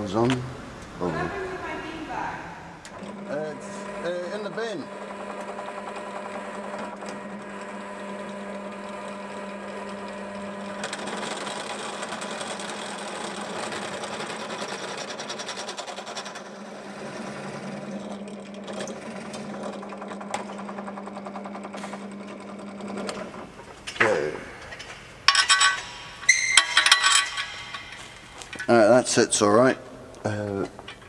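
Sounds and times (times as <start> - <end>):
drill press motor humming: 2.8 - 28.7
drill bit grinding metal: 3.0 - 23.6.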